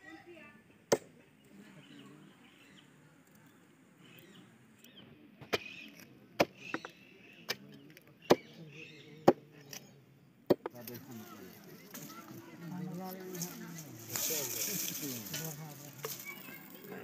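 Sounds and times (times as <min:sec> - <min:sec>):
cleaver chopping on wood: 0:00.9 - 0:01.1, 0:06.4 - 0:07.6, 0:08.3 - 0:08.5, 0:10.5 - 0:10.8.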